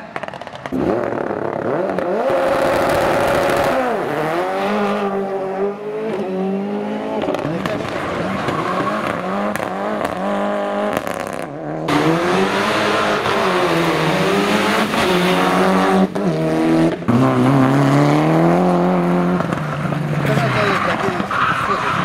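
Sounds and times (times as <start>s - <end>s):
rally car engines revving: 0.0s - 22.0s.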